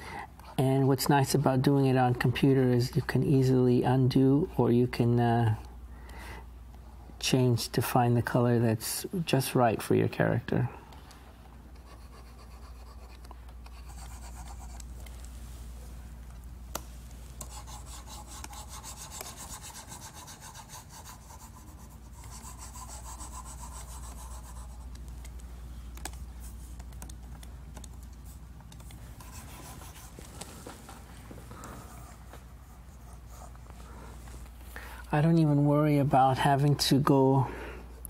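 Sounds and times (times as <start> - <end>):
steady low hum: 0.0 - 38.0
stylus rubbing on screen: 11.7 - 16.0, 16.8 - 27.3, 27.9 - 34.6.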